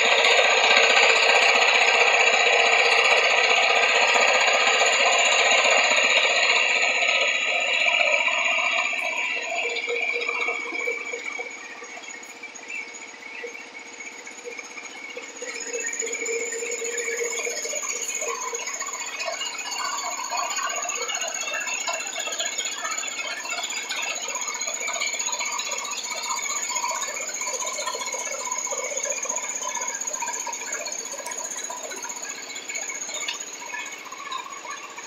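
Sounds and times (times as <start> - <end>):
high whine: 0.0 - 23.1
ride-on mower engine running: 0.0 - 35.0.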